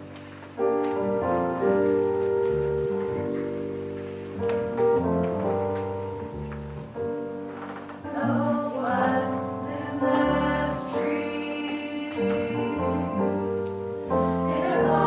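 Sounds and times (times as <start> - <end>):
instrumental accompaniment chords: 0.0 - 15.0
choir singing: 8.0 - 15.0.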